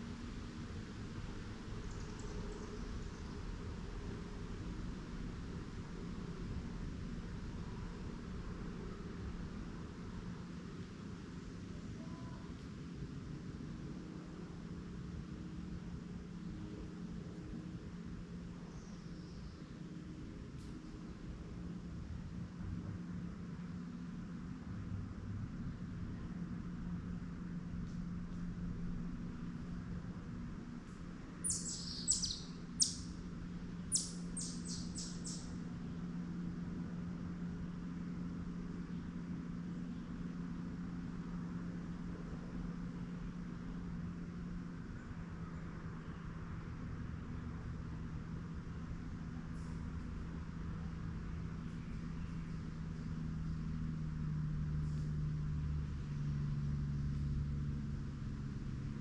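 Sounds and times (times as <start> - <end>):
low mechanical drone: 0.0 - 59.0
soft outdoor hiss: 0.0 - 59.0
steady low hum: 0.0 - 59.0
songbird calling: 31.4 - 33.2, 33.8 - 35.6.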